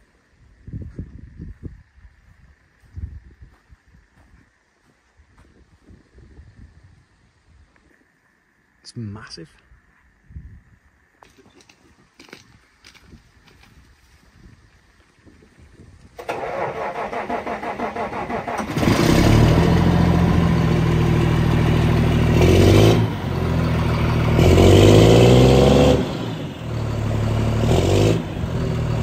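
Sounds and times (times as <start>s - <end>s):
diesel engine cranking on starter: 16.2s - 27.6s
tractor engine revving: 16.2s - 29.0s.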